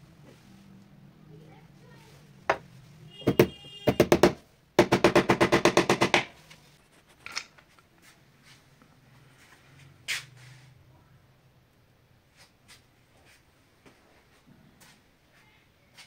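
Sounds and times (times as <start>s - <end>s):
hammer tapping nails into wood: 3.3s - 6.3s.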